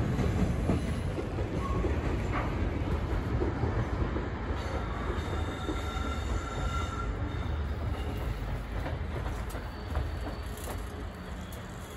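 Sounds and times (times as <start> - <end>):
train wheels rumbling on rail: 0.0 - 11.9
high wheel squeal: 9.3 - 11.9.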